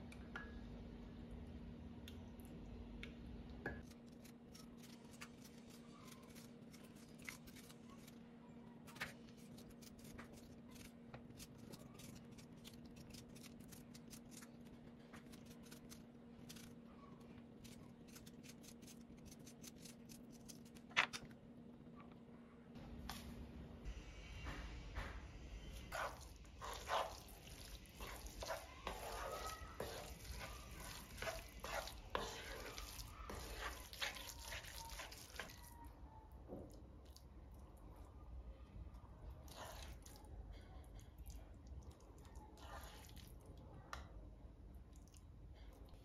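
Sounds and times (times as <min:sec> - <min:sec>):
hands squeezing tomato: 0:25.8 - 0:36.0.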